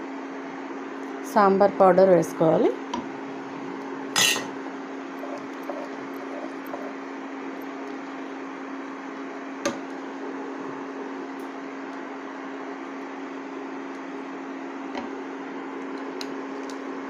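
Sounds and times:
induction cooktop hum and hiss: 0:00.0 - 0:17.0.

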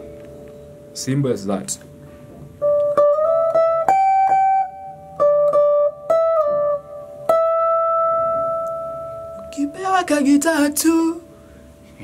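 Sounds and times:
electric guitar picked melody: 0:00.0 - 0:12.0.

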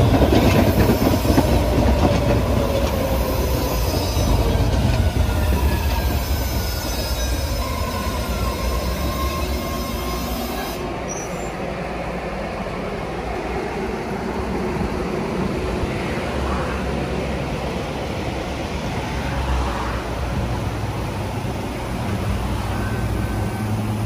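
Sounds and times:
subway train motors whining: 0:00.0 - 0:24.0
train rumble: 0:00.0 - 0:24.0
wheel squeal: 0:00.2 - 0:11.5.

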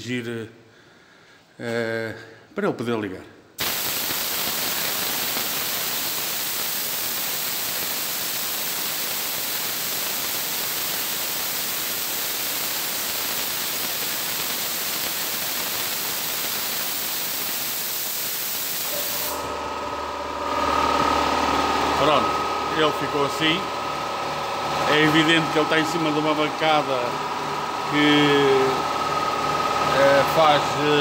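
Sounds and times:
compressed air hissing: 0:03.6 - 0:19.5
air compressor running: 0:03.6 - 0:31.0.

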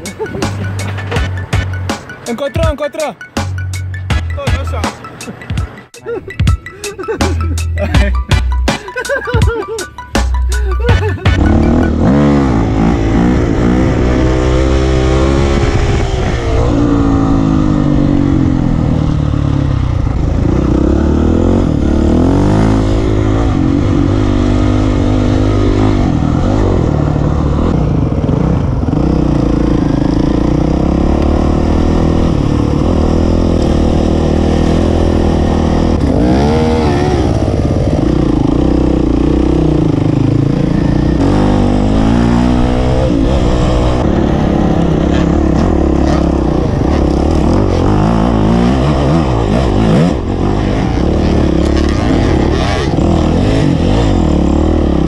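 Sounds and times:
dirt bike engine revving: 0:10.9 - 0:55.0.

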